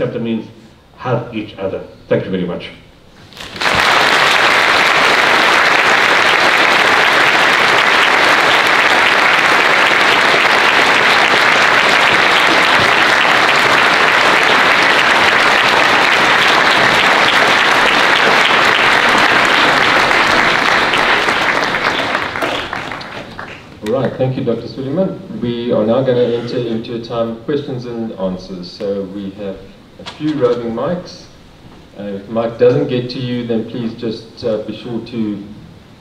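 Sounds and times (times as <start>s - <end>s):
audience clapping: 3.2s - 24.1s.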